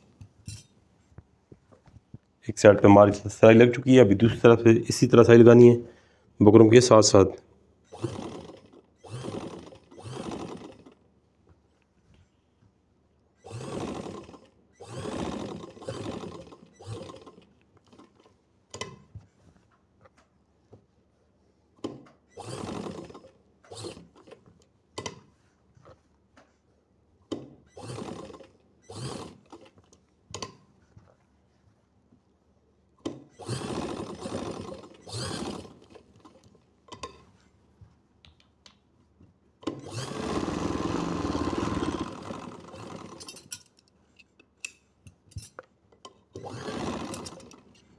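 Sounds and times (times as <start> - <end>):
sewing machine stitching: 7.9 - 11.0, 13.4 - 19.0, 21.8 - 24.4, 27.4 - 29.8, 33.1 - 36.5, 39.6 - 43.6, 46.3 - 47.9.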